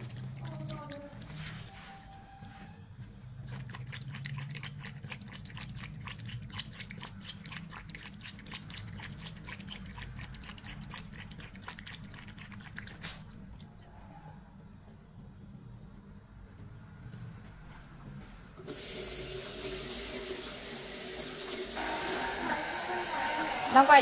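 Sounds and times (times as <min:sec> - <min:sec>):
dog lapping water: 0:00.0 - 0:01.4, 0:03.3 - 0:13.7.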